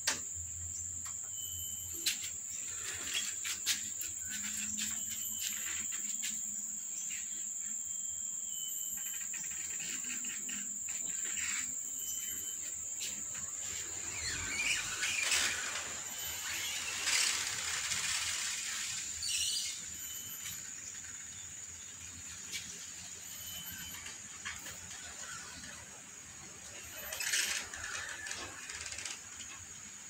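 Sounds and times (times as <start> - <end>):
high-pitched insect drone: 0.0 - 29.6
rustling and scratching: 2.0 - 6.5.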